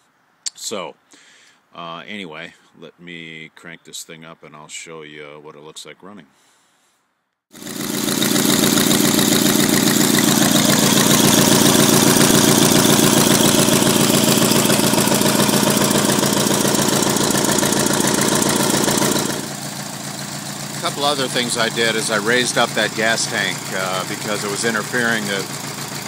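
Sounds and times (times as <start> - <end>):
go-kart engine running: 7.6 - 26.0.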